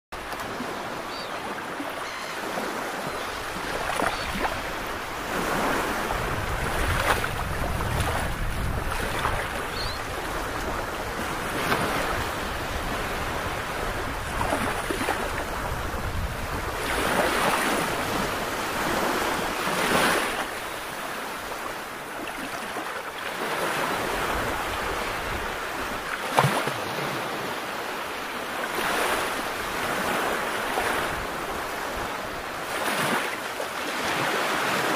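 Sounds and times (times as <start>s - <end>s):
sea waves washing: 0.2s - 34.9s
wind buffeting microphone: 4.6s - 19.4s.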